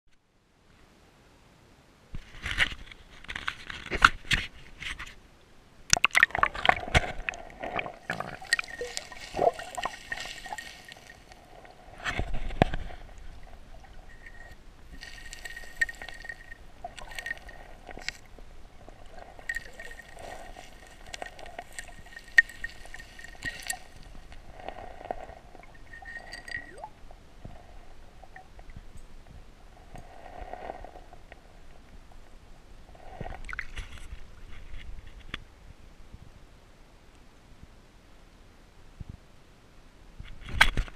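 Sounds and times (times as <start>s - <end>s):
water splashing and gurgling: 5.9s - 28.8s
hand digging through gravel: 7.6s - 13.4s, 14.0s - 18.3s, 19.2s - 25.4s.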